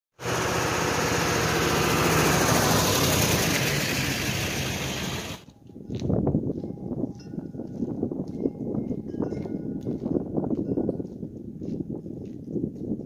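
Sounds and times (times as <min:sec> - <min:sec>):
pickup truck passing by: 0:00.2 - 0:05.4
footsteps on pavement: 0:05.4 - 0:13.0.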